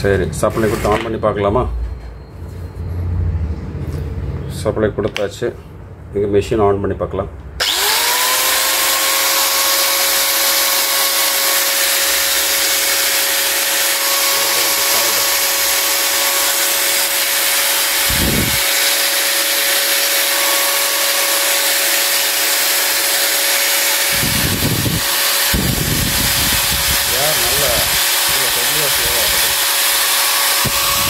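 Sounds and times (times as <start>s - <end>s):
angle grinder whining: 7.6s - 31.0s.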